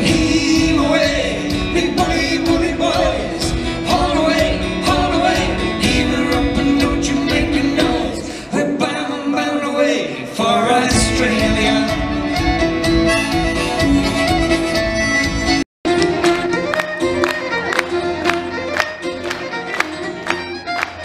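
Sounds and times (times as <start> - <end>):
drum kit: 0.0 - 8.4, 10.9 - 16.9
person singing: 0.0 - 12.7
acoustic guitar: 0.0 - 21.0
fiddle: 11.9 - 21.0.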